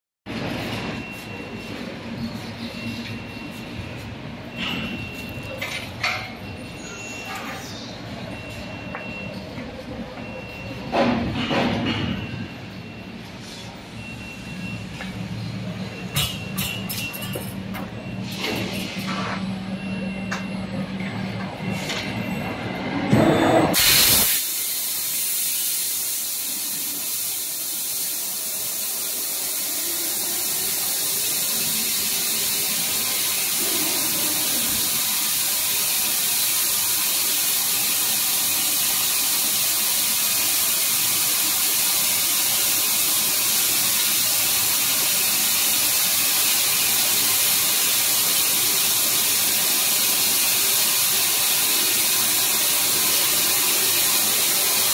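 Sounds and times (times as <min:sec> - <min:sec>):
laser cutter burst: 0:23.6 - 0:39.7
assist gas hissing: 0:23.8 - 0:36.7.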